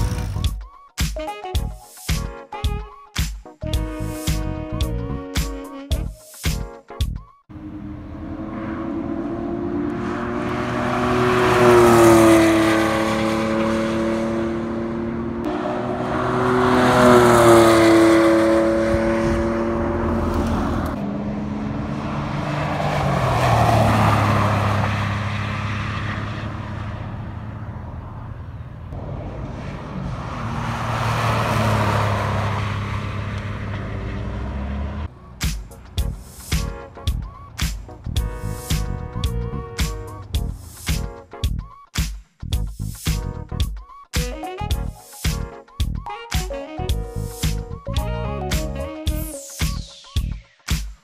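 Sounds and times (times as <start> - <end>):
race cars passing at speed: 7.5 - 40.9.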